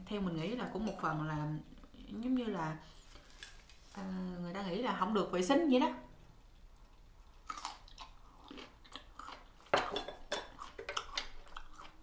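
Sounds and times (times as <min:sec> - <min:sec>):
vegetable bitten and chewed: 0:06.5 - 0:12.0.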